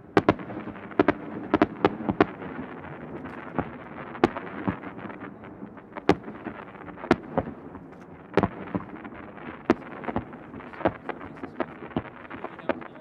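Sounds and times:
firework bangs: 0.0 - 13.0
firework crackle: 0.0 - 13.0
small firework pops: 0.1 - 13.0.

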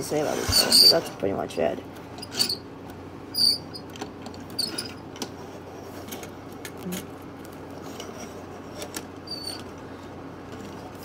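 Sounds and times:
high squeaks: 0.2 - 1.2, 2.2 - 2.6, 3.3 - 3.9, 4.5 - 5.0, 9.2 - 9.7.

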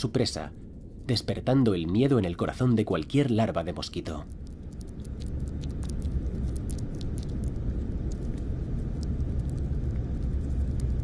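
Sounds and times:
faint high clicks and ticks: 4.0 - 11.0
low underwater rumble: 4.3 - 11.0.

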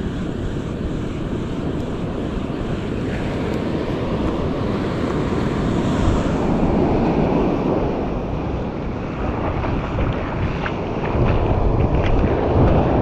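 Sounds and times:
surf breaking on shore: 0.0 - 13.0
wind buffeting microphone: 0.0 - 13.0.

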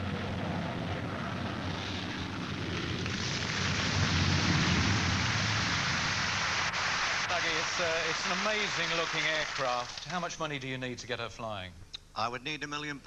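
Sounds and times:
jet aircraft roar: 0.0 - 8.9.

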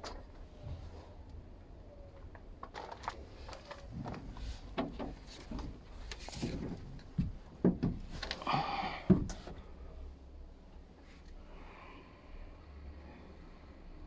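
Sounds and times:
knocks and bumps: 4.0 - 9.6.

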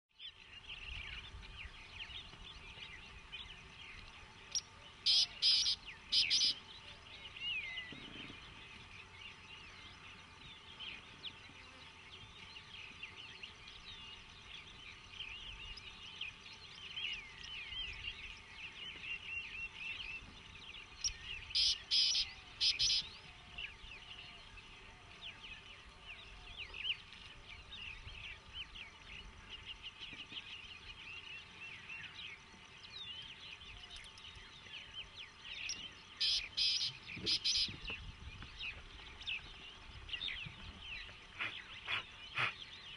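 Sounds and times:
faint outdoor background noise: 0.1 - 42.9
birds chirping and calling: 0.2 - 42.9
loud clipped bird call: 5.1 - 6.6, 36.2 - 37.7, 41.4 - 42.7.

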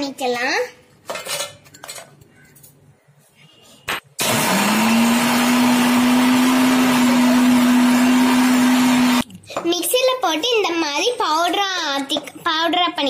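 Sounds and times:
mixer grinder motor whining: 4.2 - 9.2.

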